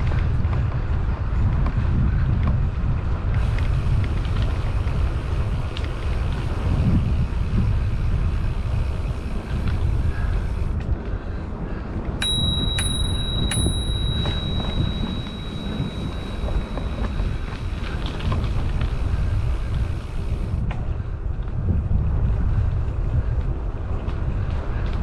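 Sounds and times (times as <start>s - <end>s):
wind rumble on microphone: 0.0s - 25.0s
bicycle bell ringing: 12.2s - 17.8s.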